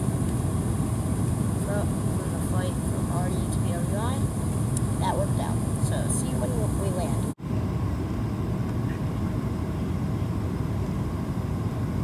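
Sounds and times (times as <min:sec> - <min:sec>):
airplane cabin engine rumble: 0:00.0 - 0:12.0.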